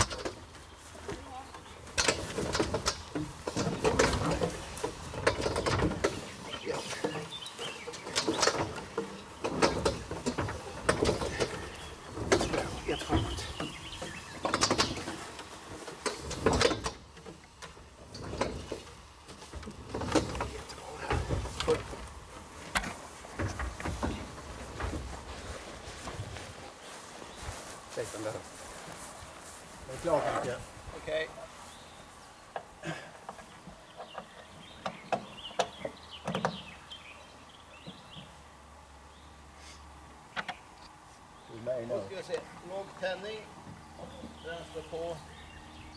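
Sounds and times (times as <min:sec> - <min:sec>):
sharp clicks and knocks: 0:00.0 - 0:25.2, 0:33.3 - 0:36.7
small birds chirping: 0:00.0 - 0:45.9.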